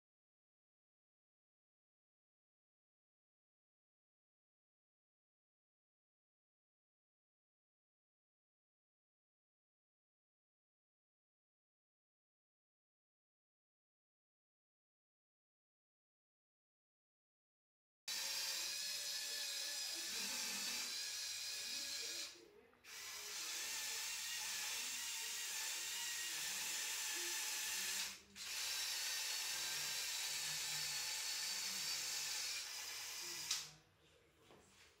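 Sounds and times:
toy motor whining: 0:18.1 - 0:33.7.

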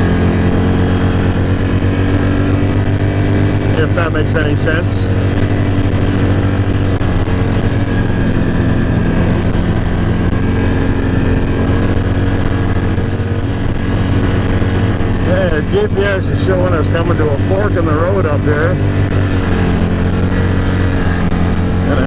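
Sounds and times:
atv engine running: 0:00.0 - 0:22.0.

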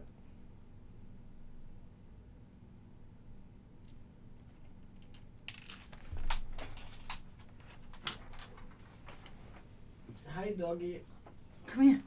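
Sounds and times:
small items clicking on a workbench: 0:03.9 - 0:09.4.

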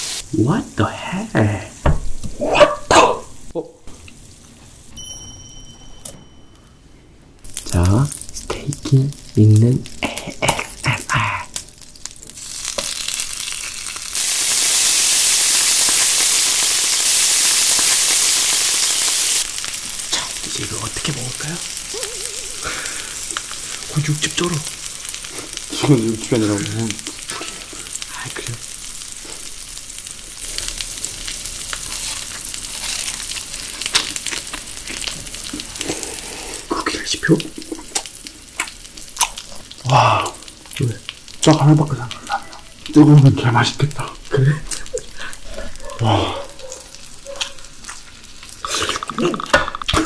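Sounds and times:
steak sizzling on griddle: 0:00.0 - 0:00.9, 0:07.4 - 0:48.7
ice crunching and crackling: 0:30.5 - 0:36.1.

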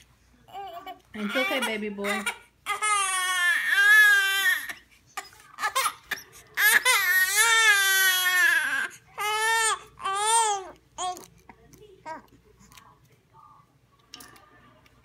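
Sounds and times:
baby crying: 0:00.5 - 0:11.2.

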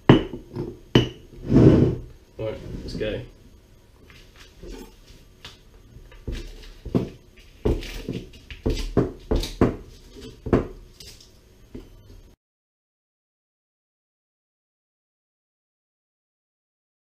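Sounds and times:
knife chopping on wooden board: 0:06.1 - 0:10.8.

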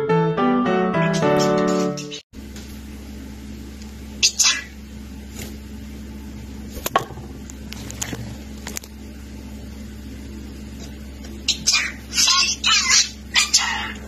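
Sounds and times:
steady low hum: 0:02.4 - 0:14.0
budgerigar chirping: 0:11.5 - 0:14.0.

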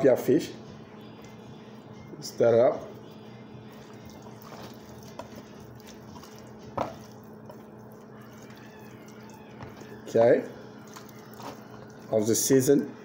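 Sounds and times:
steady low hum: 0:00.0 - 0:13.0
hands squishing raw fish: 0:03.7 - 0:12.8.

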